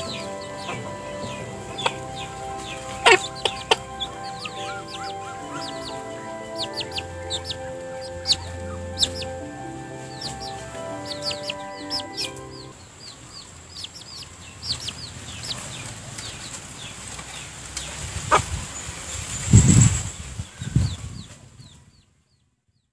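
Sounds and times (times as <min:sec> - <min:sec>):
background music of held notes: 0:00.0 - 0:12.9
hen clucking: 0:00.0 - 0:16.7, 0:18.2 - 0:18.6
chick peeping: 0:00.0 - 0:19.0.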